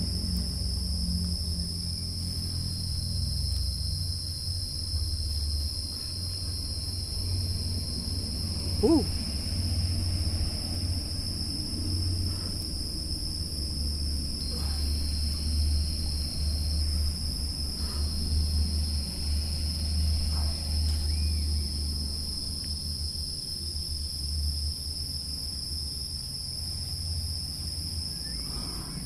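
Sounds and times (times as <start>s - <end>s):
high-pitched insect chorus: 0.0s - 29.0s
rising and falling call: 8.8s - 9.1s.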